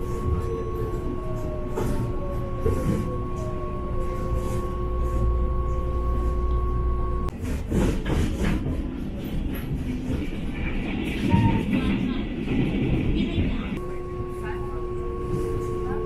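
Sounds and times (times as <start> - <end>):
steady whine: 0.0 - 7.3
train rumble: 0.0 - 16.0
rattling rail noise: 7.3 - 16.0.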